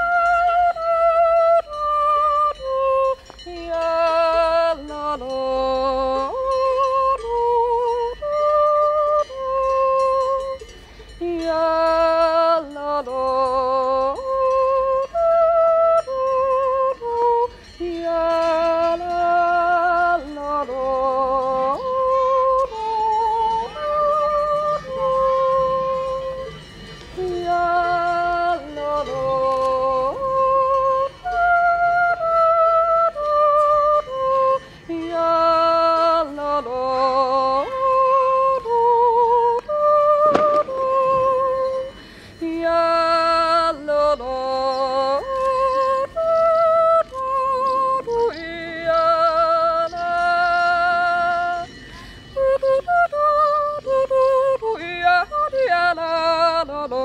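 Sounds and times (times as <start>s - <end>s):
woman yodeling: 0.0s - 10.6s, 11.2s - 57.0s
woman breathing: 41.9s - 42.4s, 51.9s - 52.4s.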